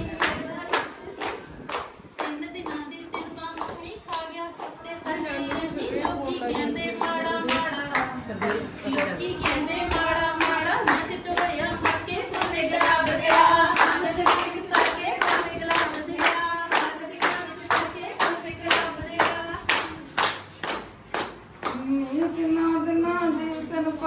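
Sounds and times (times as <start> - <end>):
hand clapping in rhythm: 0.0 - 22.2
people singing a folk song: 9.3 - 19.6.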